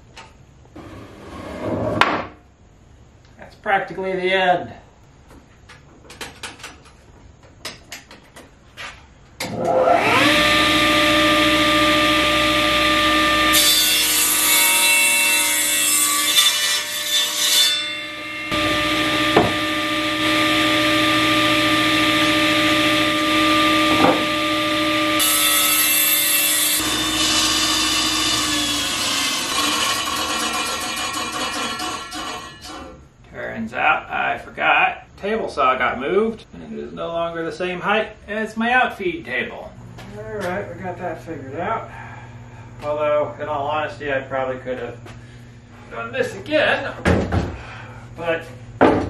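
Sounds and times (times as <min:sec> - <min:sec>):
woodworking machine cutting wood: 0:09.4 - 0:33.0.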